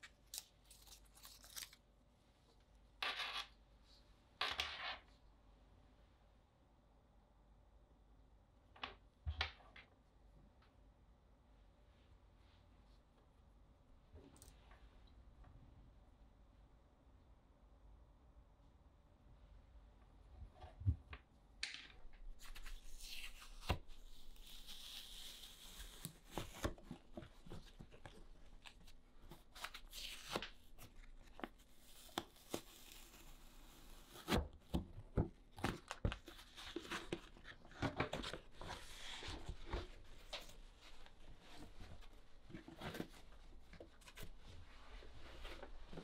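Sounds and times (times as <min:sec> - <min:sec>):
paper rustling and tearing: 0:00.1 - 0:01.8, 0:22.4 - 0:34.4.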